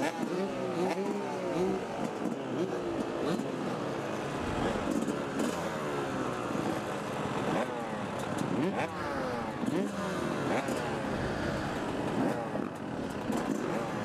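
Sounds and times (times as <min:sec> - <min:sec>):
dirt bike engines revving: 0:00.0 - 0:14.0.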